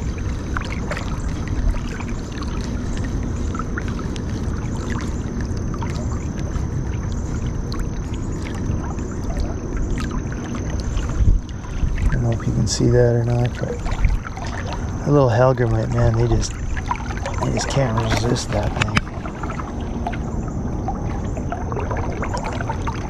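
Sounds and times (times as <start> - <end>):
thin high steady tone: 0.0 - 23.0
creek water rushing: 7.7 - 23.0.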